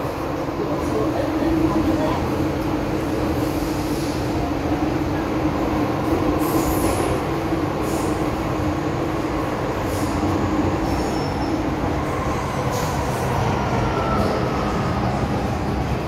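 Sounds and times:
metro train rumbling in tunnel: 0:00.0 - 0:16.0.

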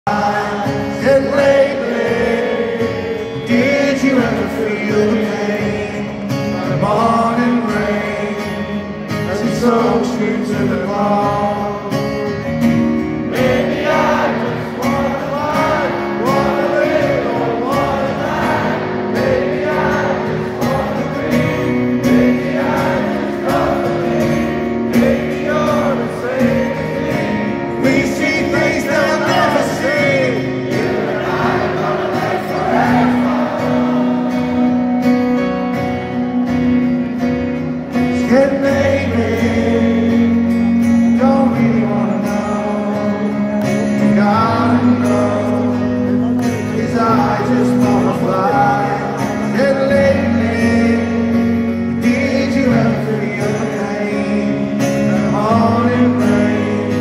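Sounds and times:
guitars: 0:00.0 - 0:57.0.

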